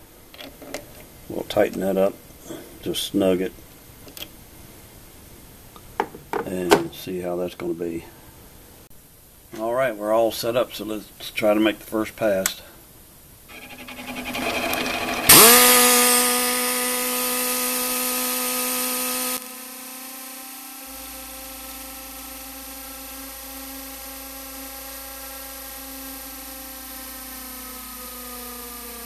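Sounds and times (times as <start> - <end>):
air die grinder whining: 13.5 - 29.0.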